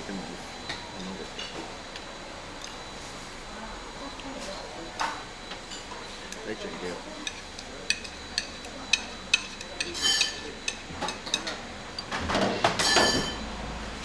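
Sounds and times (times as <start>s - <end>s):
chopsticks clinking on tableware: 7.2s - 11.4s.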